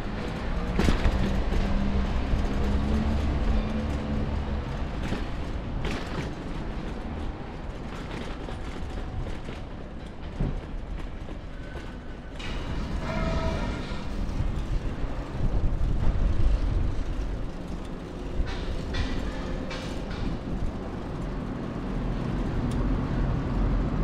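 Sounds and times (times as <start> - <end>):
vehicle road rumble: 0.0 - 24.0.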